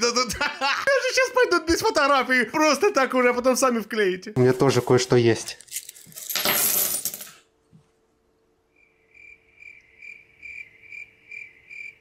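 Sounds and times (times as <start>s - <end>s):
coins clattering onto a desk: 5.6s - 7.4s
cricket chirping: 8.7s - 12.0s.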